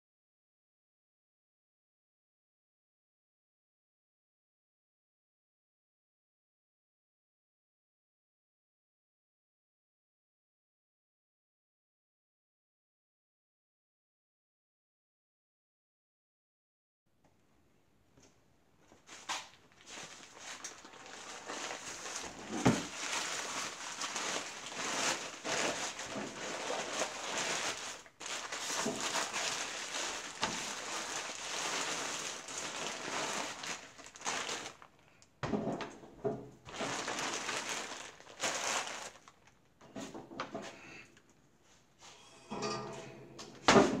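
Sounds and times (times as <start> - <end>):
plastic bag crinkling: 19.0 - 35.2, 36.7 - 39.7.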